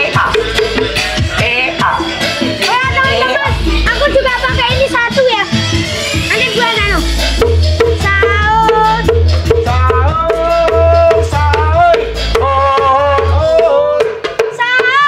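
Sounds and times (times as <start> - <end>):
heavy bass line: 0.0 - 14.2
knocking percussion beat: 0.0 - 15.0
person singing a melody: 7.9 - 15.0.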